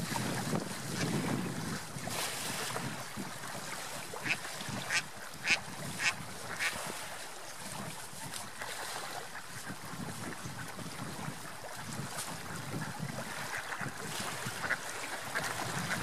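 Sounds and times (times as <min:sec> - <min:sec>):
wind: 0:00.0 - 0:16.0
lapping water: 0:02.4 - 0:16.0
ducks quacking: 0:04.2 - 0:06.8, 0:12.6 - 0:16.0.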